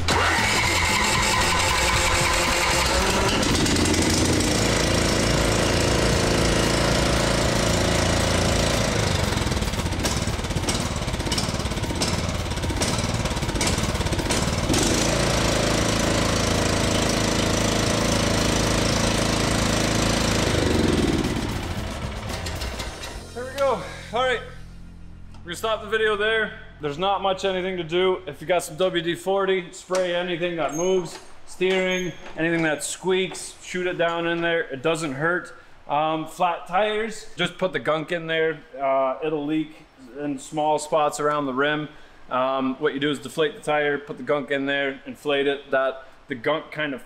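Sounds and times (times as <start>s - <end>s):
riding mower engine running: 0.0s - 26.9s.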